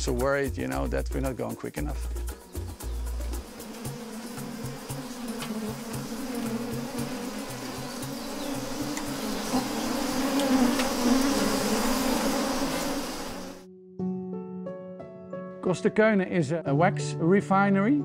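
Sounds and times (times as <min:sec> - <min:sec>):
honeybees buzzing: 0:02.0 - 0:13.7.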